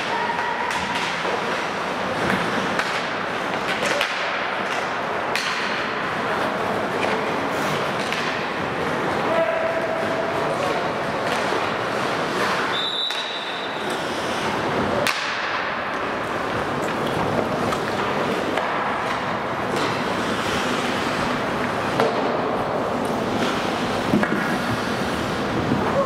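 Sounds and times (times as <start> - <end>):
hockey sticks clacking: 0.0 - 26.0
skates hissing on ice: 7.3 - 8.0, 13.6 - 14.9, 19.7 - 22.3, 23.0 - 26.0.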